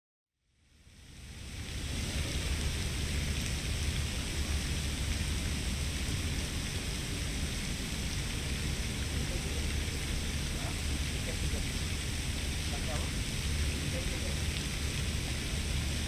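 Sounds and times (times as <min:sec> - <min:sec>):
constant low rumble: 0:00.5 - 0:16.0
even hiss: 0:00.5 - 0:16.0.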